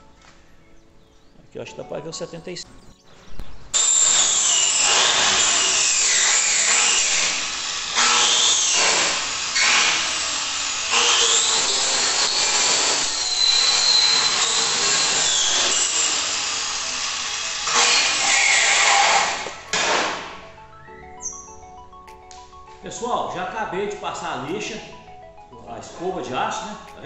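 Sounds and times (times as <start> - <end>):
angle grinder on metal: 3.8 - 20.4.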